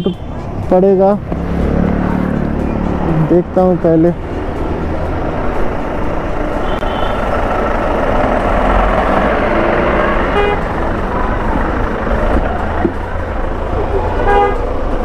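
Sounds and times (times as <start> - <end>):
horn toots: 0.0 - 0.3, 6.6 - 7.4, 9.8 - 10.8, 14.2 - 14.8
traffic noise: 0.0 - 15.0.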